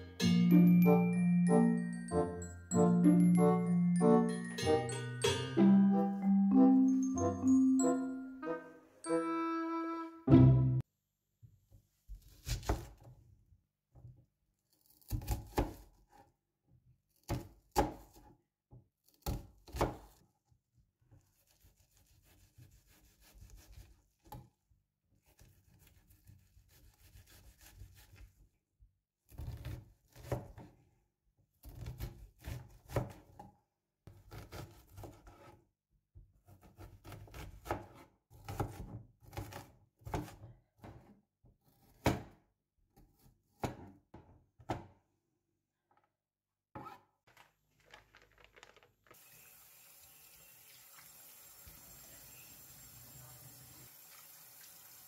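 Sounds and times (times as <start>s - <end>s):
knife cutting onion on board: 12.2s - 13.1s, 14.8s - 16.1s, 19.1s - 20.2s, 29.3s - 30.7s, 31.6s - 33.5s, 34.1s - 35.6s, 36.4s - 42.4s, 43.0s - 44.0s.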